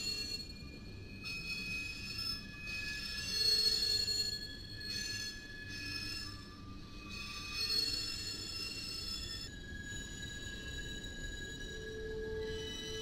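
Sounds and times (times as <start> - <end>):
train wheels squealing: 0.0 - 13.0.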